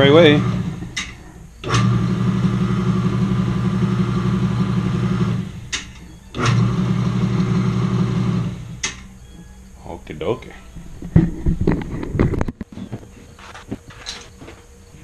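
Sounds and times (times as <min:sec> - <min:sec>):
electric motor humming: 0:00.0 - 0:09.5.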